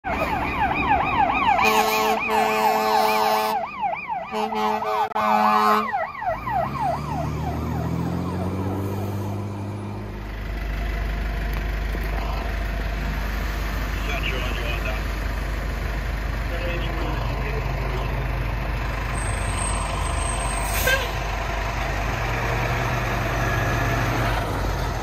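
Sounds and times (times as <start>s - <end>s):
fire engine siren yelping: 0.0s - 10.3s, 11.7s - 25.0s
truck engine accelerating: 0.0s - 25.0s
air horn blasts: 1.6s - 6.0s, 20.6s - 21.3s.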